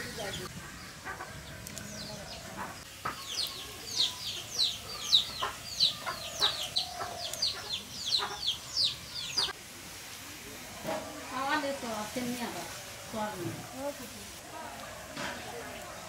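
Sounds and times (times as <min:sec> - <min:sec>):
chicks peeping: 0:00.0 - 0:09.6.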